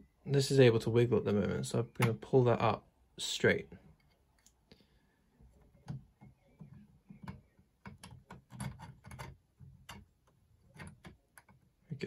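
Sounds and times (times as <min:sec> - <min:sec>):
plastic parts clicking together: 0:05.8 - 0:11.7.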